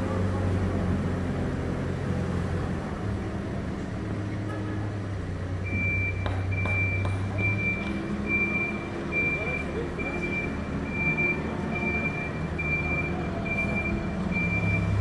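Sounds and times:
diesel engine running: 0.0s - 15.0s
reversing alarm beeping: 5.6s - 15.0s.

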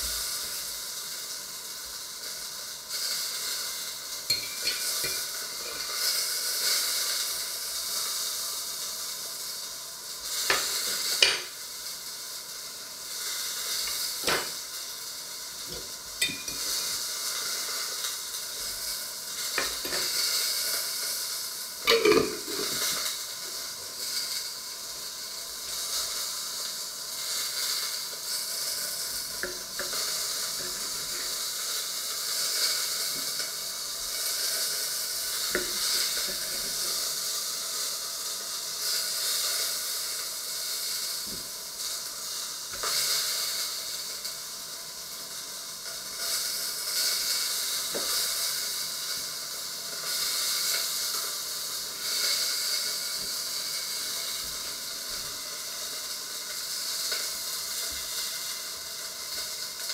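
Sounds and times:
steady hiss: 0.0s - 59.9s.

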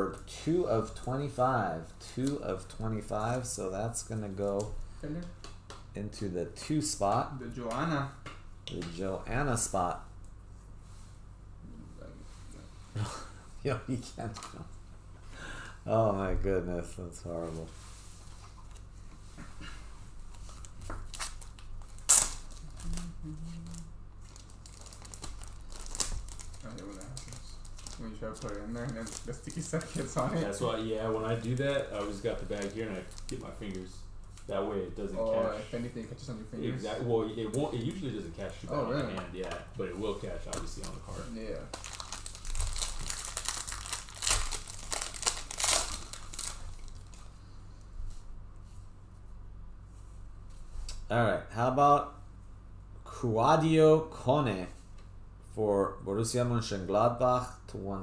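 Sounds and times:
plastic sleeves crinkling: 20.2s - 34.5s, 39.4s - 47.4s.

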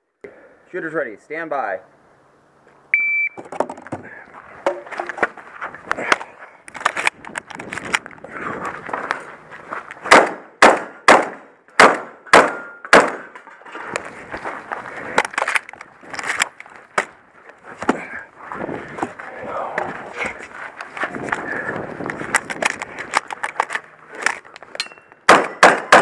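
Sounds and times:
shotgun shots: 10.1s - 13.3s, 25.3s - 26.0s.

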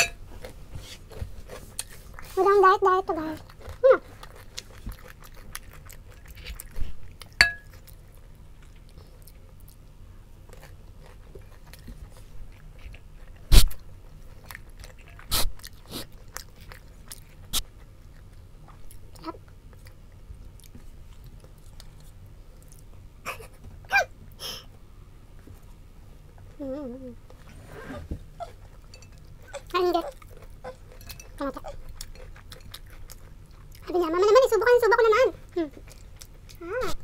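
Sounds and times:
person chewing and crunching food: 0.0s - 23.1s, 28.3s - 37.0s.

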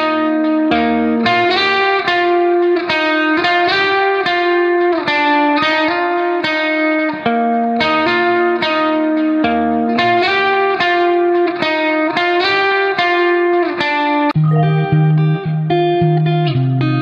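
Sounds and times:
instrumental guitar music: 0.0s - 17.0s.

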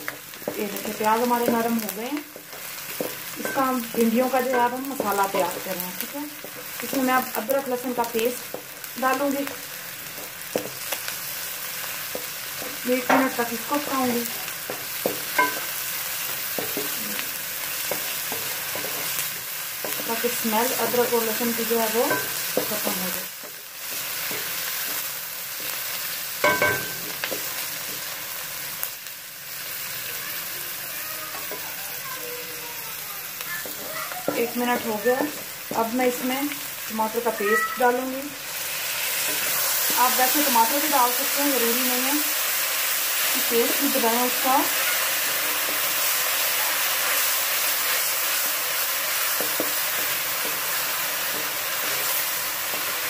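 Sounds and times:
onions sizzling in hot oil: 0.0s - 53.0s
spatula knocking on pan: 12.2s - 15.7s, 21.8s - 25.8s, 26.4s - 27.5s, 33.6s - 36.0s
wooden spatula knocking on pan: 33.6s - 36.0s.

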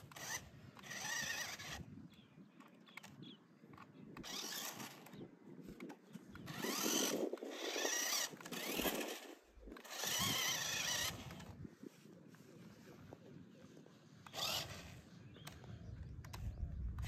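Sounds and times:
toy truck electric motor whining: 0.0s - 2.1s, 4.2s - 11.6s, 14.2s - 17.0s.

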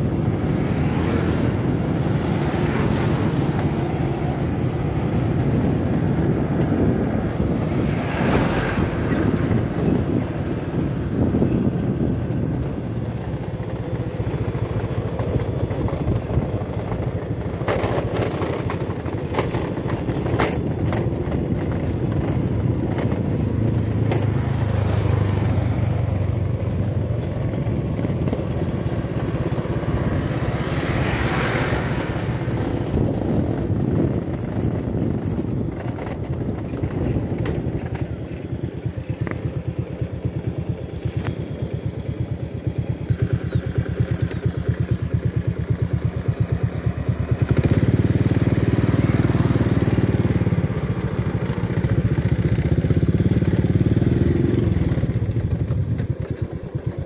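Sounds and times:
wind rush: 0.0s - 17.6s, 18.9s - 38.3s
small motorcycle engine running: 0.0s - 57.0s.

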